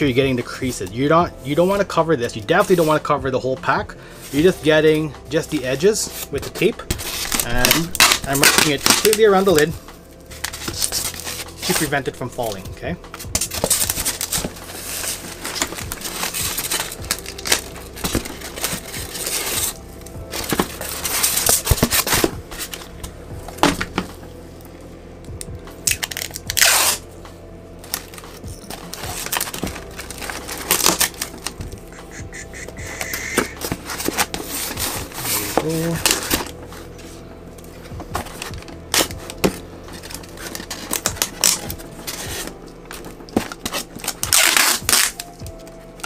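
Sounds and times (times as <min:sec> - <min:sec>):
packing tape pulled off roll: 0:07.0 - 0:09.7, 0:10.3 - 0:22.9, 0:25.4 - 0:27.1, 0:27.8 - 0:36.6, 0:38.2 - 0:46.0
cardboard box rustling: 0:28.0 - 0:31.8.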